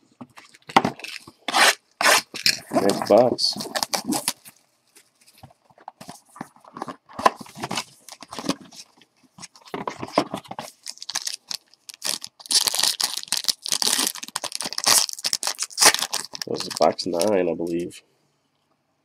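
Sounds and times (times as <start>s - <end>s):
foil pack crinkling and tearing: 0.5s - 4.6s, 10.0s - 17.4s.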